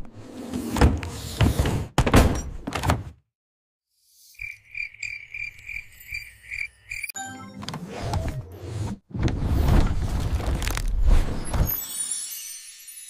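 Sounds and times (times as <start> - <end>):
night insects chirping: 4.0 - 7.2.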